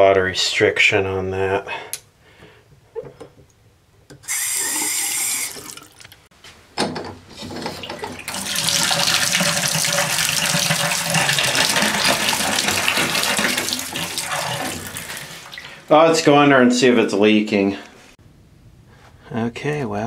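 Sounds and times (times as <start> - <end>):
water running from a faucet: 4.3 - 6.2, 7.9 - 15.8.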